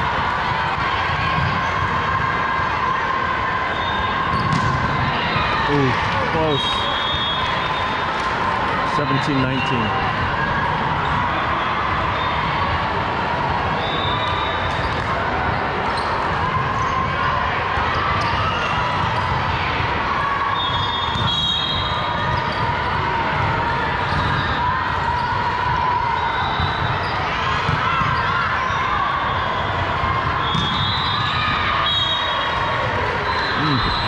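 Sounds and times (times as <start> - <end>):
murmur of voices: 0.0 - 20.6, 31.4 - 34.0
sneakers squeaking: 3.7 - 5.5, 13.7 - 17.1, 17.9 - 19.4, 26.2 - 34.0
volleyballs hit and bouncing: 4.3 - 6.5.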